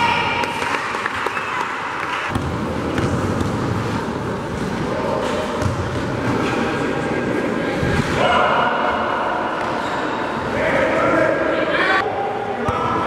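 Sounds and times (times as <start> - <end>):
steady background noise: 0.0 - 13.0
voices of players and spectators: 0.0 - 13.0
basketball bouncing on court: 2.3 - 3.8, 5.6 - 6.2.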